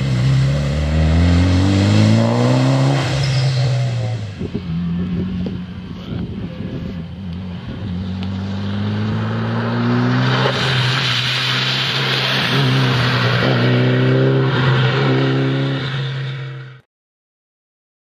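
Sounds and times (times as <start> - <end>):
rally car engine revving: 0.0 - 16.8
tyres hissing through water: 10.0 - 13.5.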